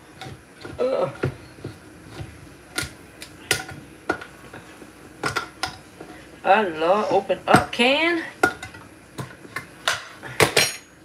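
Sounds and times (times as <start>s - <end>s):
kitchen utensils clicking and knocking: 5.2s - 5.8s.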